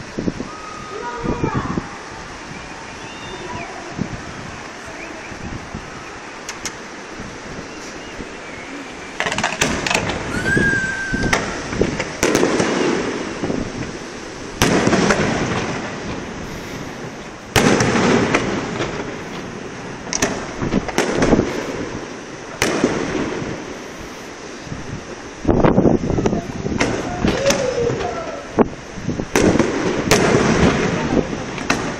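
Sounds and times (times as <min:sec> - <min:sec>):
firework shells bursting: 0:09.2 - 0:13.9, 0:14.5 - 0:23.7, 0:29.3 - 0:31.9
short steady whistle: 0:10.3 - 0:11.4.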